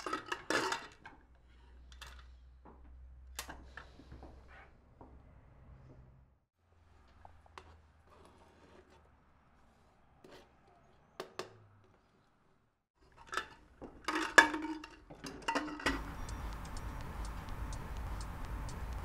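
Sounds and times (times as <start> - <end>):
pots and lids clanking: 0.0 - 1.2, 13.1 - 16.1
faint ticking: 16.0 - 19.0.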